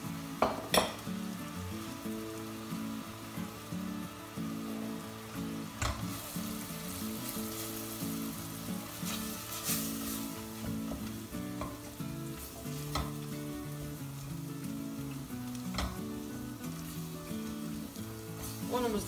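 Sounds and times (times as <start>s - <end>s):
mushrooms sizzling in a pot: 0.0s - 19.0s
wooden spoon knocking against pot: 0.4s - 1.0s.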